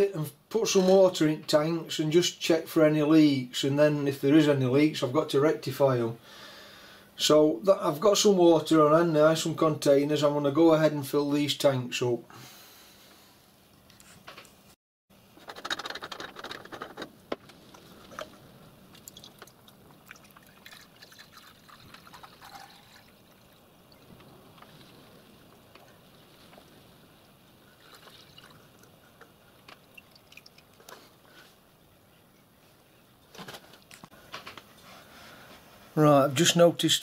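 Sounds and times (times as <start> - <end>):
water pouring through funnel: 17.6 - 31.3.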